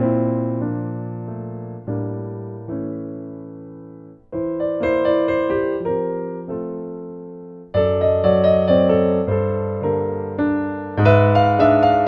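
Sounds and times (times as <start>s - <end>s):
piano music: 0.0s - 12.0s.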